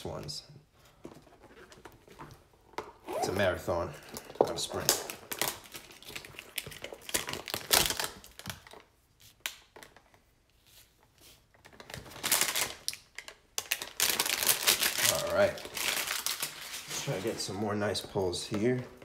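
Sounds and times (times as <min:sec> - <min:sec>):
packaging crinkling: 0:04.7 - 0:08.9, 0:11.6 - 0:17.4.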